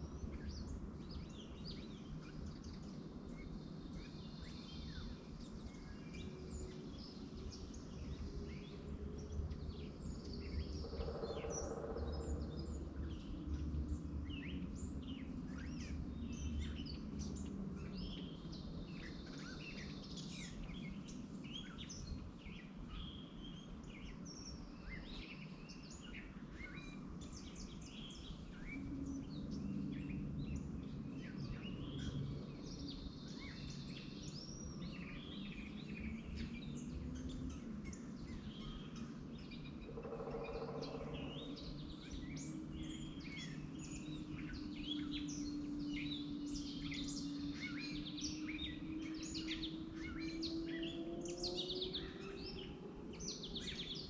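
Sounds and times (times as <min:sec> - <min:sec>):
small birds chirping: 0:00.0 - 0:54.0
low tone rising in pitch: 0:40.7 - 0:54.0.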